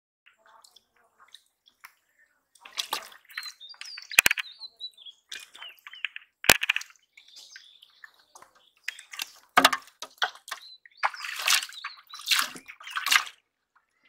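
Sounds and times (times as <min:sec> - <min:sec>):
hand splashing in muddy water: 0:00.4 - 0:04.5, 0:08.9 - 0:13.4
fish flapping in water: 0:02.6 - 0:04.4, 0:08.9 - 0:13.4.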